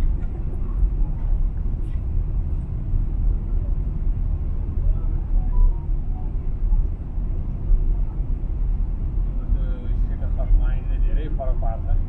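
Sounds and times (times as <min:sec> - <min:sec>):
aircraft cabin engine rumble: 0:00.0 - 0:12.0.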